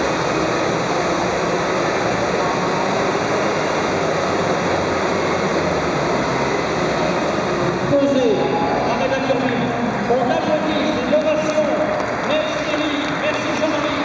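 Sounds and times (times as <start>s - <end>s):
model helicopter rotor rushing: 0.0s - 9.1s.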